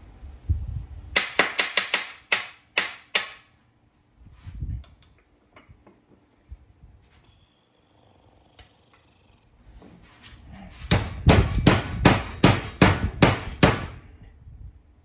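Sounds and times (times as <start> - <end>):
hammer striking a metal punch: 10.9 - 14.1.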